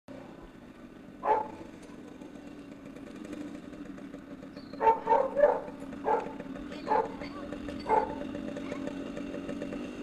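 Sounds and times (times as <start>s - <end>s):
motorcycle engine idling: 0.1s - 10.0s
dog bark: 1.2s - 1.6s, 4.8s - 7.2s, 7.8s - 8.9s.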